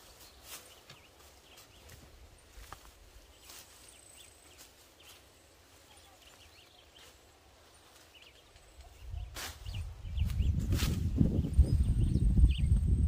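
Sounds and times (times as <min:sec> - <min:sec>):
bird chirps: 0:03.2 - 0:07.3.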